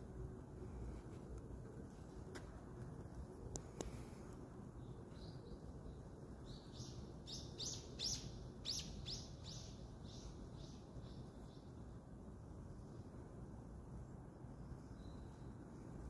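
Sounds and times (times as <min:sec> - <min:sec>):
low background hum: 0:00.0 - 0:16.0
small bird chirping: 0:04.8 - 0:11.7, 0:14.8 - 0:15.6.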